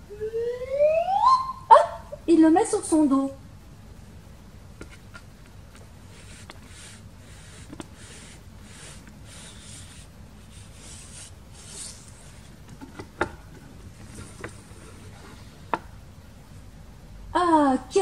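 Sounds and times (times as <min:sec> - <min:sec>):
card rubbing against card: 0:04.8 - 0:13.1.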